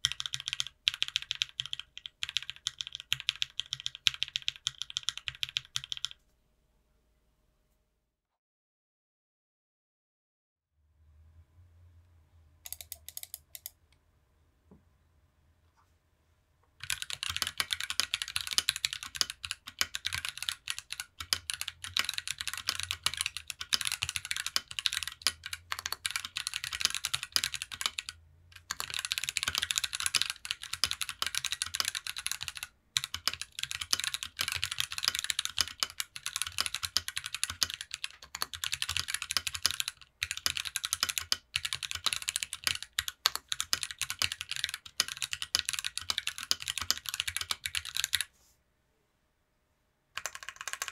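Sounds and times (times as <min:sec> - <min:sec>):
fast typing on mechanical keyboard: 0:00.0 - 0:06.2, 0:12.7 - 0:13.7, 0:16.8 - 0:48.3, 0:50.2 - 0:50.9.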